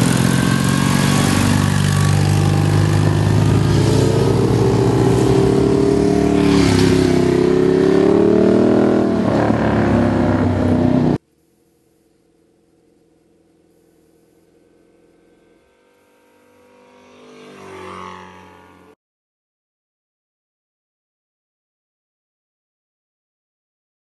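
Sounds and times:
motorcycle accelerating past: 0.0 - 11.2, 14.5 - 19.0.

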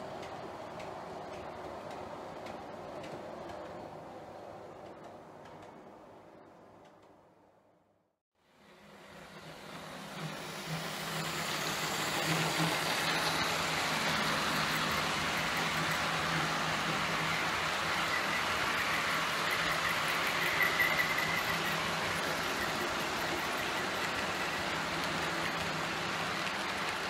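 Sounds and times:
model train wheels rattling on track: 9.1 - 27.0.

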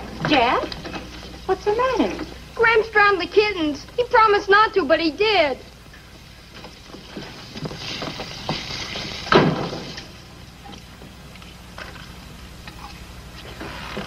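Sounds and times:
thump: 9.3 - 9.9.

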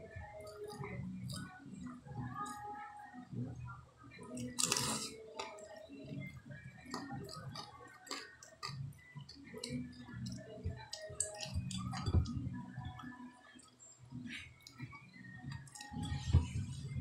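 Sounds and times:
person chewing with open mouth: 4.3 - 12.5, 14.4 - 17.0.

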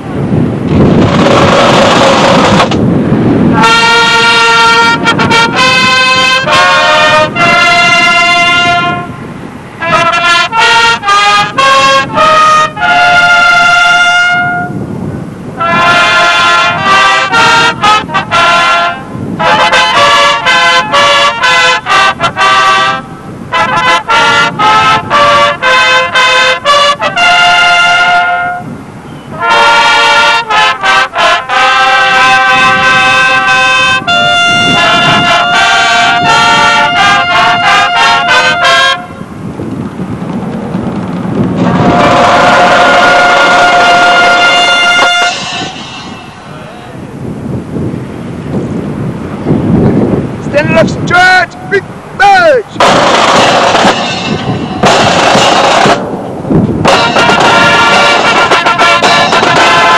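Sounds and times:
burst of noise: 0.5 - 5.3, 40.9 - 47.3, 52.8 - 59.9
marching band playing: 0.7 - 14.8, 15.5 - 28.7, 29.3 - 39.3, 40.6 - 47.0, 50.6 - 59.9.

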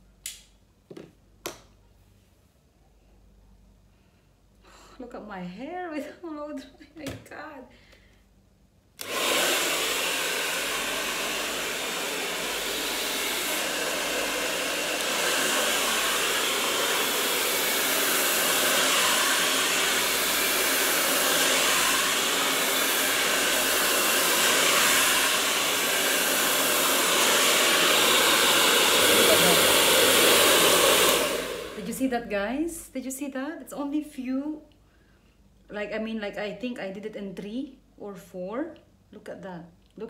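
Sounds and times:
hair dryer blowing: 9.0 - 32.2.

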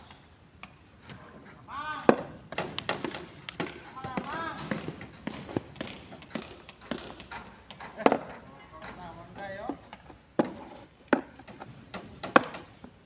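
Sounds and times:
hammer knocking on wooden boards: 10.4 - 12.7.

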